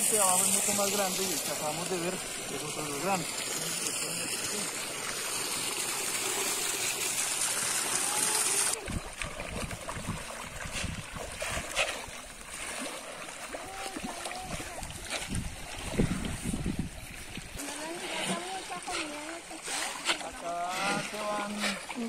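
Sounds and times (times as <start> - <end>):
water rushing: 0.0 - 22.0
water splashing: 0.0 - 22.0.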